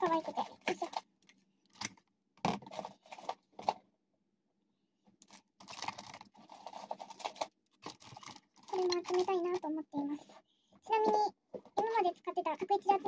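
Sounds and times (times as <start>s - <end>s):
plastic rustling and clicking: 0.0s - 3.9s, 5.1s - 9.7s.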